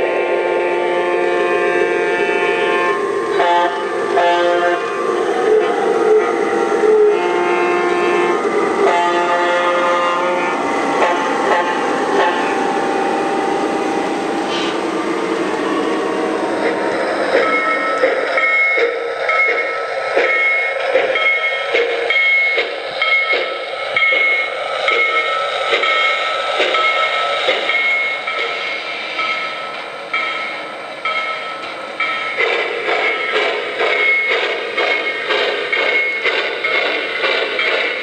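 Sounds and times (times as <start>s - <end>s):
model steam locomotive chuffing: 0.0s - 38.0s.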